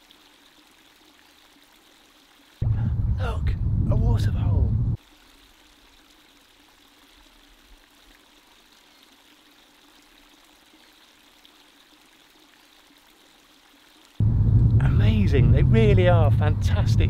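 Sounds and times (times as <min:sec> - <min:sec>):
faint river water flowing: 0:00.0 - 0:02.7, 0:05.0 - 0:14.3.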